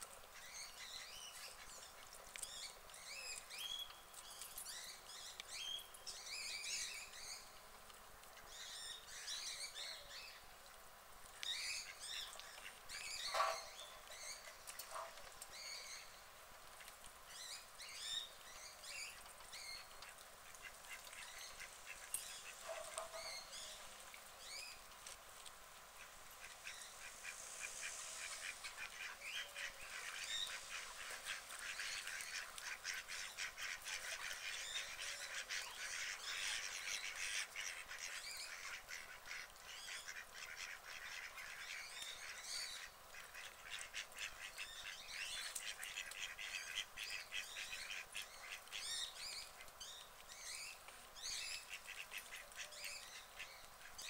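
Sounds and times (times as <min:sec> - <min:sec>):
birds calling: 0:11.5 - 0:16.2.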